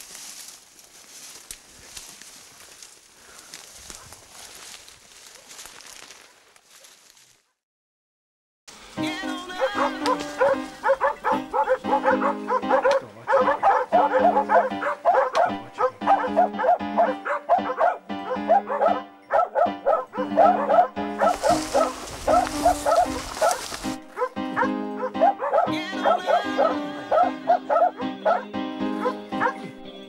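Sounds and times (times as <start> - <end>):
background music of held chords: 8.8 - 30.0
hounds barking and baying: 9.6 - 30.0.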